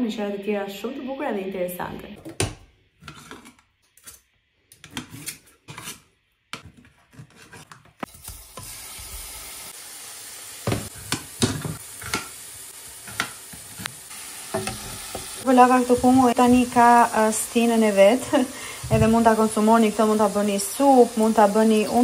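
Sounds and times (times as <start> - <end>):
liver sizzling in a hot pan: 8.1 - 22.0.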